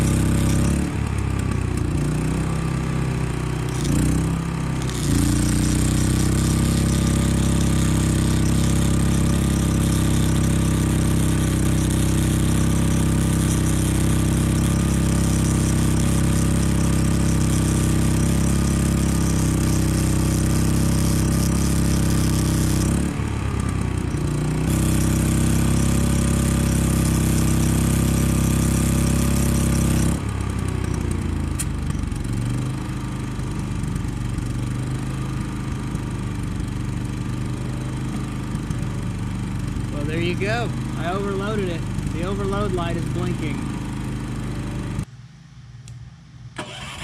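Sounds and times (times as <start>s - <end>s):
welder arc crackling and hissing: 0.0s - 1.0s, 2.4s - 30.2s, 39.8s - 44.0s
generator engine running: 0.0s - 45.1s, 46.6s - 47.0s.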